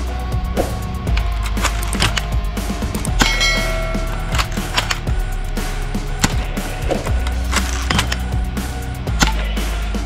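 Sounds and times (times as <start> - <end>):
background music: 0.0 - 10.0
metallic target clang: 3.1 - 4.9.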